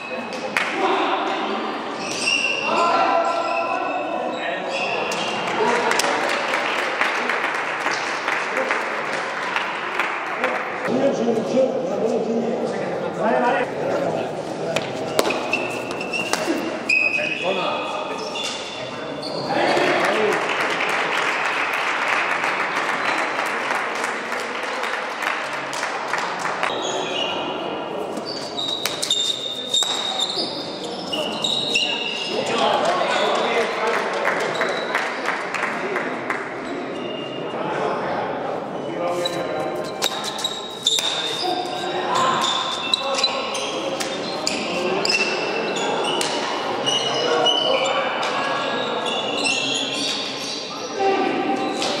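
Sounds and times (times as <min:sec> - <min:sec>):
spectators' voices: 0:00.0 - 0:52.0
shoes squeaking on court floor: 0:01.9 - 0:05.5, 0:14.4 - 0:19.6, 0:26.7 - 0:32.5, 0:38.8 - 0:52.0
spectators clapping: 0:05.4 - 0:10.9, 0:19.7 - 0:26.7, 0:33.4 - 0:36.5.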